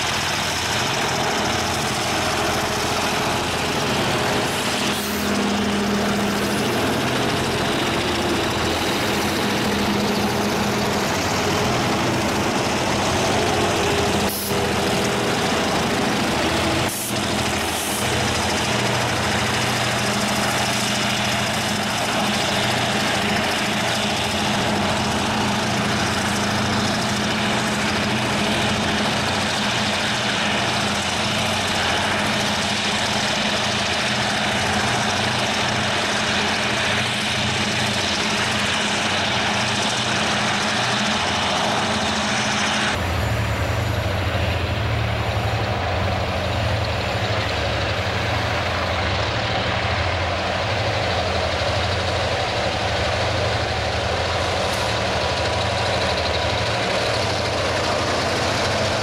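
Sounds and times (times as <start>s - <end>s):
locomotive engine drone: 0.0s - 59.0s
passing train rumble and hiss: 0.0s - 59.0s.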